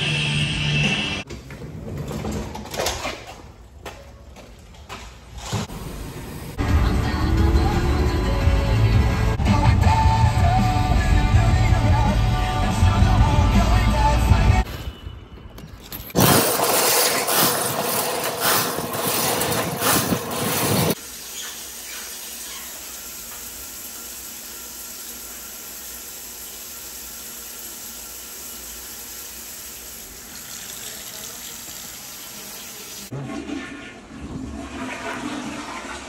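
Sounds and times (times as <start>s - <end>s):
drain cleaning machine rattling: 16.1s - 21.0s.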